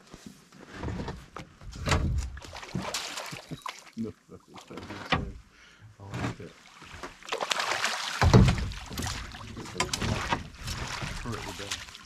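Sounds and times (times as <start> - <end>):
water splashing and sloshing: 0.6 - 12.0.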